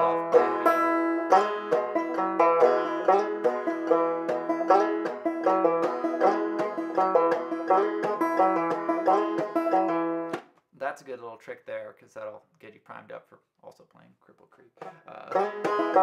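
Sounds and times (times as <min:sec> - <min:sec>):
banjo played clawhammer style: 0:00.0 - 0:10.4, 0:14.8 - 0:16.0.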